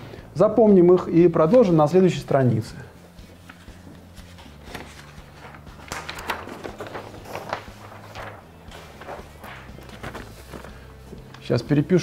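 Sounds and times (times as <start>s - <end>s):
paper sheets rustling and crackling: 3.1s - 12.0s.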